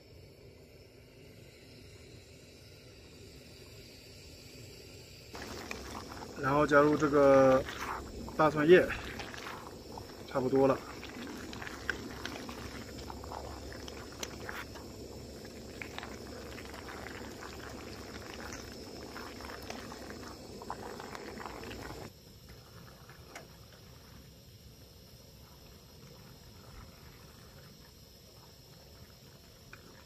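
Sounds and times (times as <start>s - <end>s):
quiet hiss: 0.0s - 30.0s
sauce bubbling and popping: 5.3s - 22.1s.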